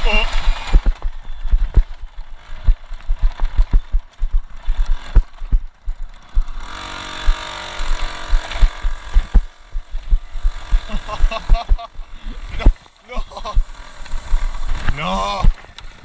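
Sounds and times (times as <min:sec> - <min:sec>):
two-stroke moped engine running: 0:00.0 - 0:16.0
heavy low thuds and knocks: 0:02.6 - 0:06.5, 0:07.2 - 0:10.8.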